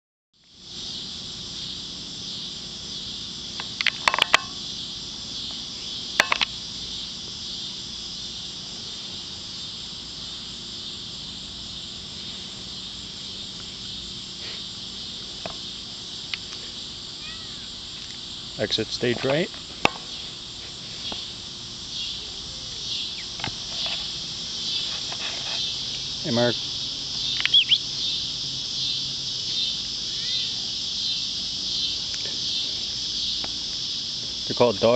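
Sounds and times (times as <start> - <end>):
insects chirring: 0.4 - 34.9
sharp clicks: 27.3 - 27.8.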